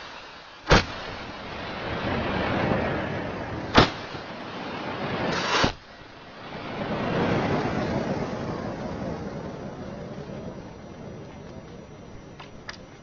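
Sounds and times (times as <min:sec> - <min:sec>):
rushing noise: 0:00.0 - 0:13.0
firecracker bangs: 0:00.6 - 0:05.9.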